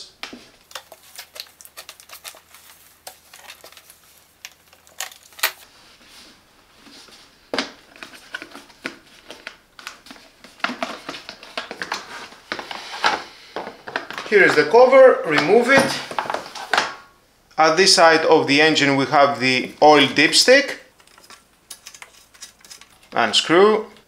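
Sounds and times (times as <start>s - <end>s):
clicks of screws and plastic cover: 21.0s - 23.1s.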